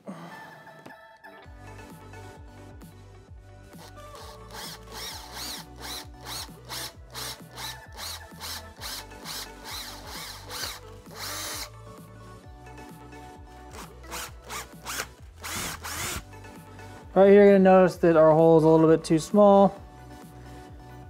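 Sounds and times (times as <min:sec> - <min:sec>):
background music: 0:00.0 - 0:21.0
cordless drill boring plastic: 0:03.8 - 0:11.7, 0:13.7 - 0:16.2.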